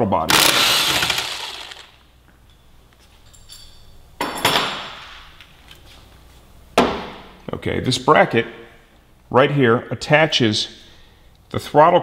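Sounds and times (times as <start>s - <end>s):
metal tools clinking and clattering: 3.2s - 4.7s.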